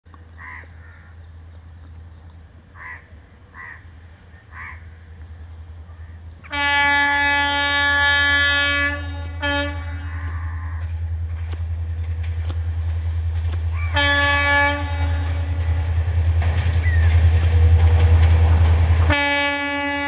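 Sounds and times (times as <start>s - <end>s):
crows cawing: 0.4s - 1.2s, 2.8s - 5.0s, 10.0s - 11.0s, 13.7s - 14.0s
locomotive horn blast: 6.4s - 10.4s, 13.9s - 16.0s, 17.4s - 20.0s.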